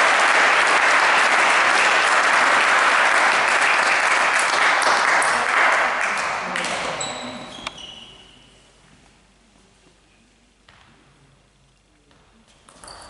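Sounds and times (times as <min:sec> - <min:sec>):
crowd applauding: 0:00.0 - 0:06.9.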